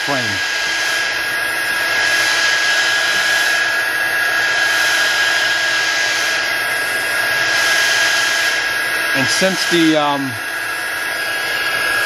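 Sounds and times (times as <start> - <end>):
heat gun blowing: 0.0 - 12.0.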